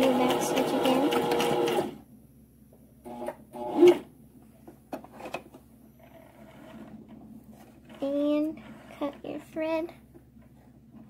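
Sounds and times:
sewing machine stitching: 0:00.0 - 0:02.0, 0:03.1 - 0:04.1, 0:06.0 - 0:07.0, 0:07.8 - 0:09.2.

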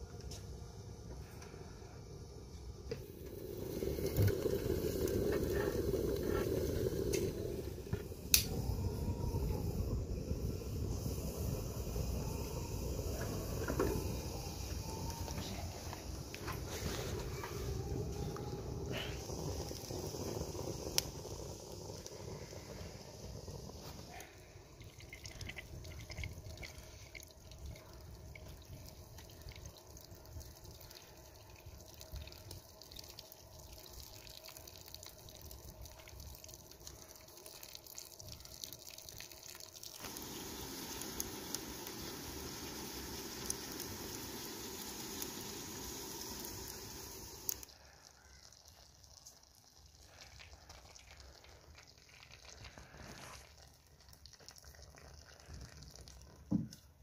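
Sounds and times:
steady watery hiss: 0:00.0 - 0:57.0
water running and dripping from tap: 0:03.0 - 0:16.7, 0:17.3 - 0:57.0.

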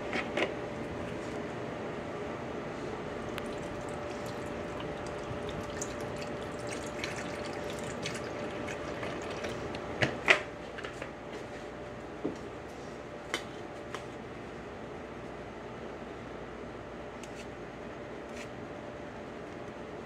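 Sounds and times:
liquid pouring into blender jar: 0:03.2 - 0:09.9.

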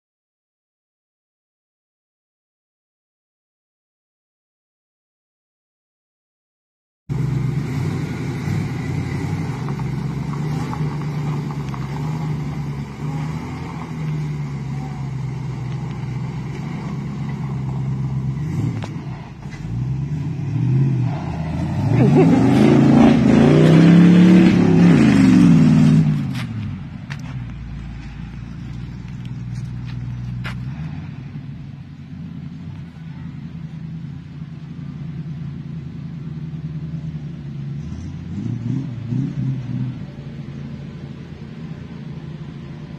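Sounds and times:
truck engine running and revving: 0:07.1 - 0:42.9.

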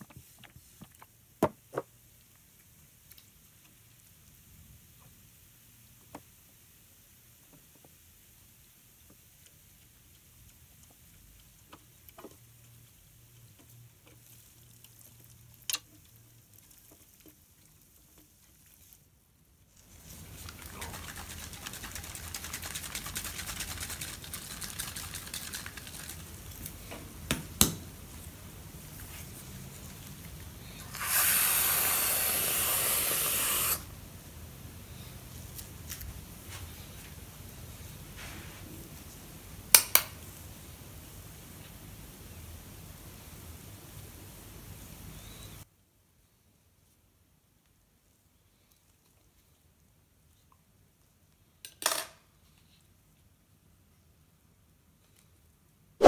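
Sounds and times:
aerosol whipped cream hiss: 0:30.7 - 0:33.9.

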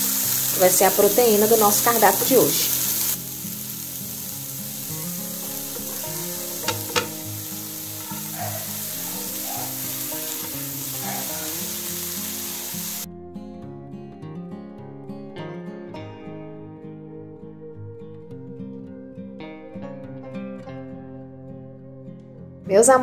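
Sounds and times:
food sizzling in frying pan: 0:00.0 - 0:13.1
acoustic guitar music: 0:00.0 - 0:23.0
soft background music: 0:00.0 - 0:23.0
utensil knocking on pan: 0:05.7 - 0:07.4.

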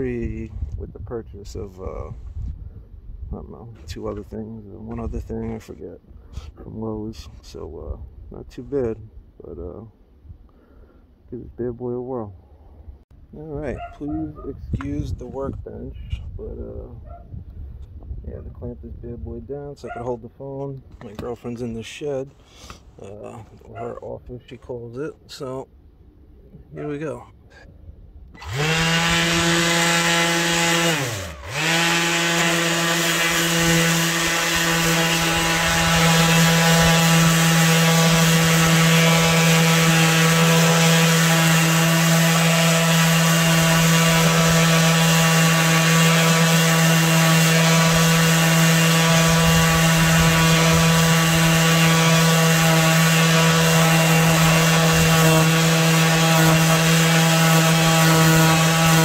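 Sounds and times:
orbital sander running: 0:28.3 - 0:59.0
sanding pad rubbing on wood: 0:28.4 - 0:59.0.

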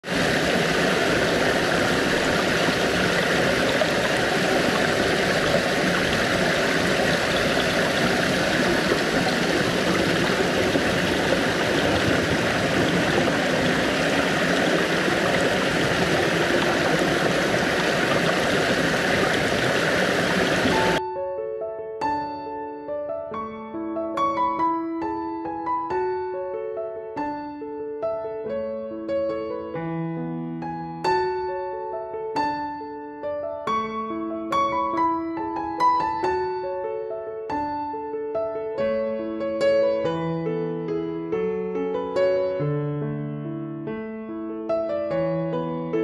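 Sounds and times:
waterfall splashing over rocks: 0:00.0 - 0:21.0.

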